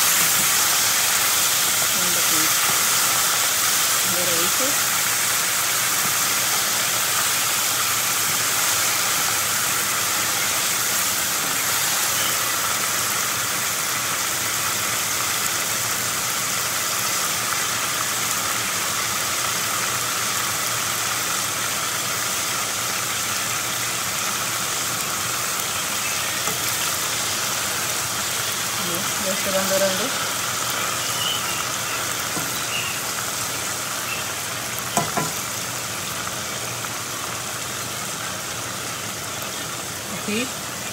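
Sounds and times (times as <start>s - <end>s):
oil sizzling while deep-frying: 0.0s - 40.9s.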